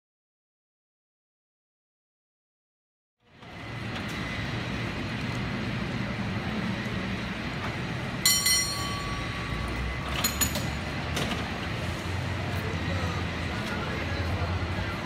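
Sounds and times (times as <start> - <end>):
ringing metallic strike: 8.2 - 10.8
metal clinks: 8.3 - 10.8.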